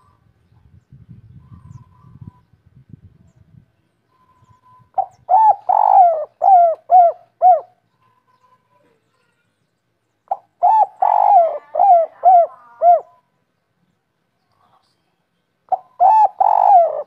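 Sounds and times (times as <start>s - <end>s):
dove cooing: 4.9s - 7.8s, 10.3s - 13.2s, 15.7s - 17.0s.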